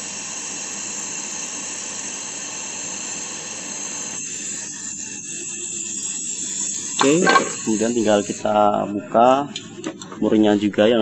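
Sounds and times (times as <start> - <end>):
torch flame hissing: 0.0 - 9.7.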